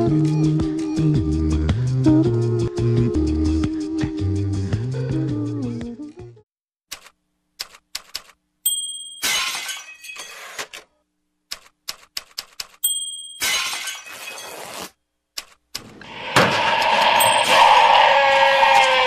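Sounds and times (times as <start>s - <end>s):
glass crashing and shattering: 9.2s - 10.5s, 13.3s - 14.6s.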